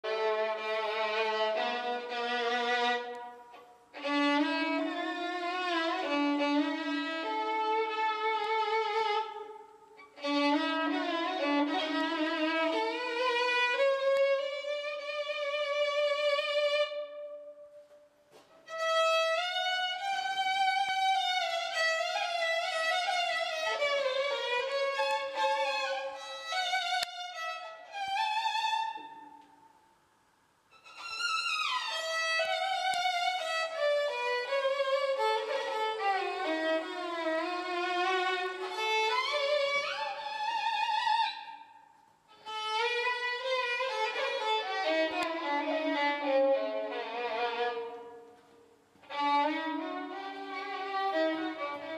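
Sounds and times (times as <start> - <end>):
solo violin melody: 0.0 - 29.6, 30.7 - 51.9.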